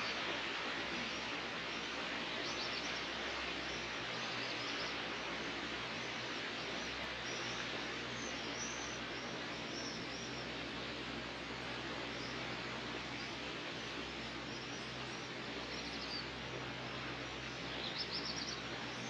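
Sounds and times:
small birds chirping: 0:12.0 - 0:19.0.

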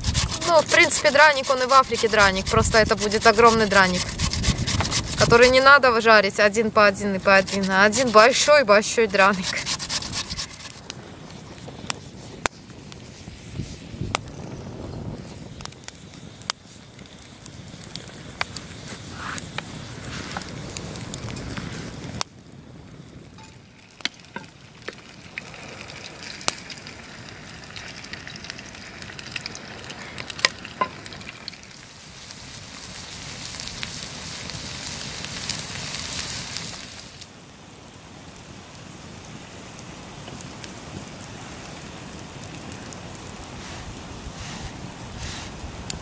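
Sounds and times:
oil popping: 0:00.0 - 0:05.8, 0:06.9 - 0:10.9
pancake sizzling in oil: 0:00.0 - 0:05.8, 0:06.8 - 0:12.3, 0:23.3 - 0:46.0.

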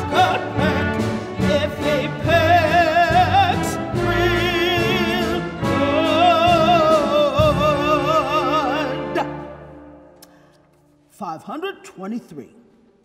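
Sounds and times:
small orchestra playing: 0:00.0 - 0:10.3.

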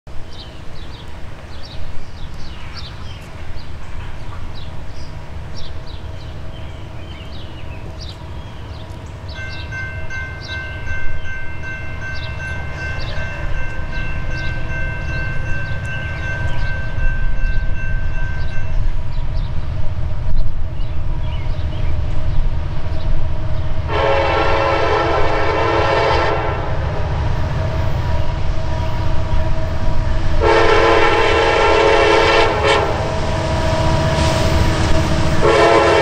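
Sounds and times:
locomotive rumble: 0:00.2 - 0:36.0
train air horn: 0:23.9 - 0:27.0, 0:27.6 - 0:36.0.

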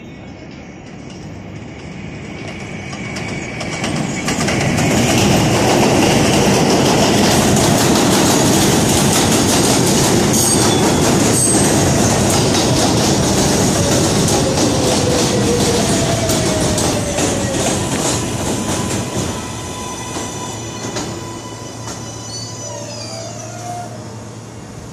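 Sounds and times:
subway train rumbling past: 0:00.0 - 0:24.9
high-pitched wheel squeals: 0:18.6 - 0:24.0.

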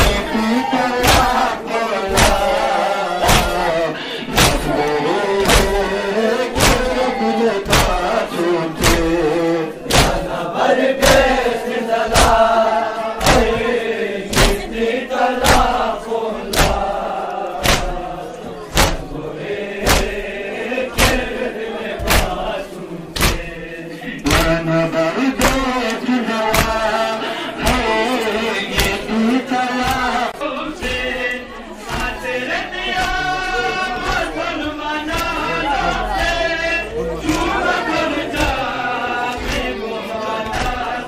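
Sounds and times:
men chanting: 0:00.0 - 0:41.0
hands slapping chests: 0:01.0 - 0:01.5, 0:02.1 - 0:10.3, 0:12.1 - 0:12.5, 0:13.2 - 0:14.7, 0:15.4 - 0:16.9, 0:17.6 - 0:18.1, 0:18.7 - 0:19.2, 0:19.8 - 0:20.3, 0:20.9 - 0:21.4, 0:22.0 - 0:22.5, 0:23.1 - 0:23.6, 0:24.2 - 0:24.6, 0:25.3 - 0:29.1, 0:29.8 - 0:31.2, 0:31.8 - 0:32.2, 0:32.9 - 0:34.4, 0:35.0 - 0:35.5, 0:36.1 - 0:36.5, 0:37.2 - 0:39.8.

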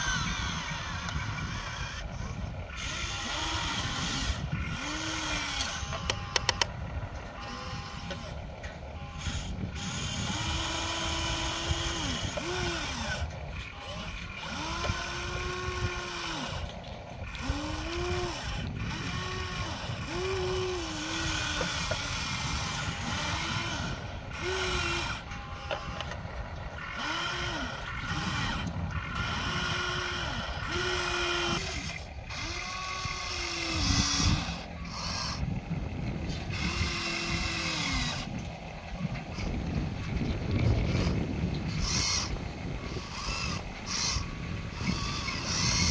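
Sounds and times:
small electric motors whining: 0:00.0 - 0:45.9
steady low rumble: 0:00.0 - 0:45.9.

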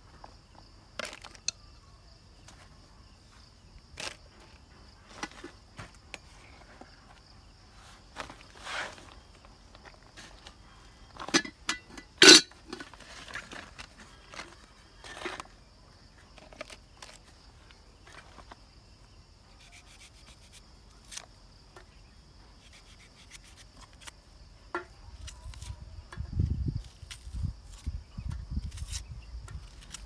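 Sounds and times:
high insect buzz: 0:18.0 - 0:24.5
knife scraping onion skin: 0:19.6 - 0:21.2, 0:22.6 - 0:24.1, 0:28.6 - 0:30.0.

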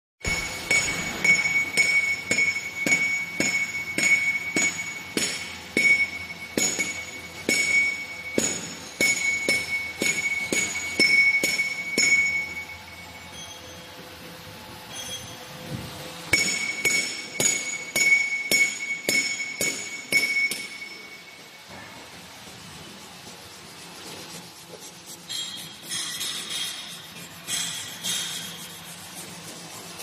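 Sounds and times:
metal-on-metal strikes ringing: 0:00.2 - 0:12.7, 0:16.3 - 0:22.0.

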